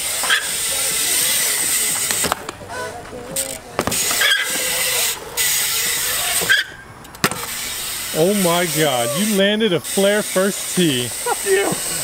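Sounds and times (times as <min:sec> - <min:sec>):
bike tyres hissing on concrete: 0:00.0 - 0:12.0
bike knocks: 0:01.9 - 0:04.7, 0:06.4 - 0:07.6.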